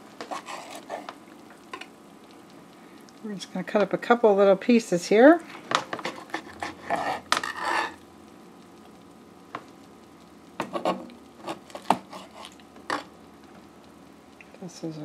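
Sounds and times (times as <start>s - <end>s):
knife scraping cutting board: 0.2s - 1.1s, 6.0s - 8.0s, 10.6s - 13.0s.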